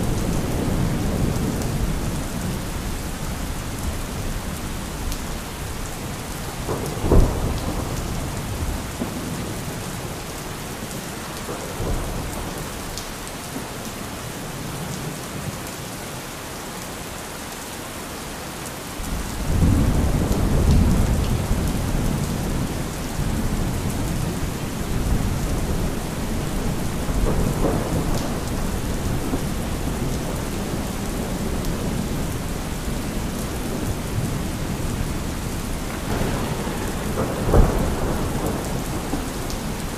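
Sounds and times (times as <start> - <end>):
low rumble of thunder: 0.0 - 10.3, 19.0 - 39.9
steady rain: 0.0 - 39.9
sharp thunderclap: 6.7 - 9.5, 35.8 - 39.9.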